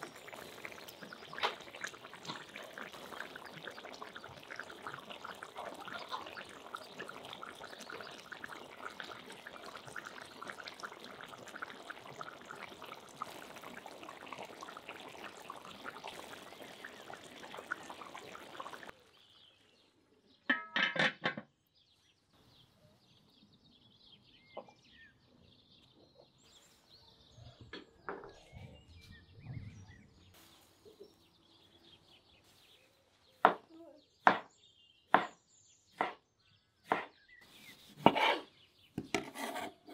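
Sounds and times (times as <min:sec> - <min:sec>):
rice and broth bubbling: 0:00.0 - 0:19.8
metal lid clattering onto pot: 0:20.5 - 0:21.4
knife chopping on cutting board: 0:36.9 - 0:37.1.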